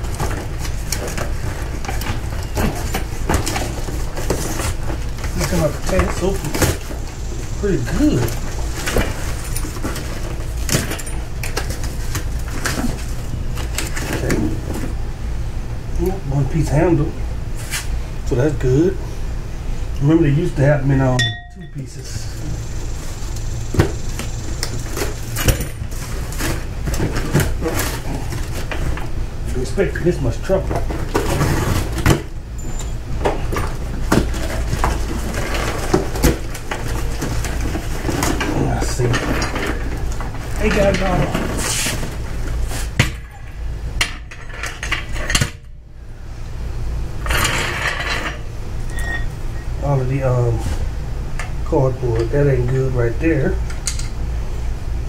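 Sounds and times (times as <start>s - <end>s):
steady low hum: 0.0s - 55.0s
scrapes and knocks: 30.6s - 43.1s.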